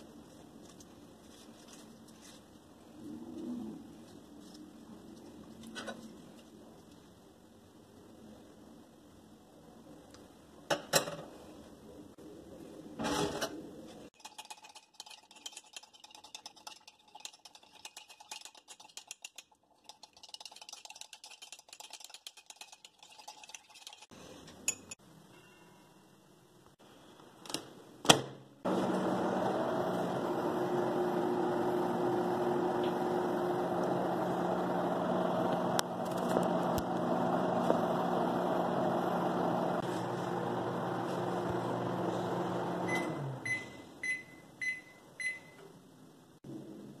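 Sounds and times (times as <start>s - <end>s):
microwave oven humming: 28.7s - 44.2s.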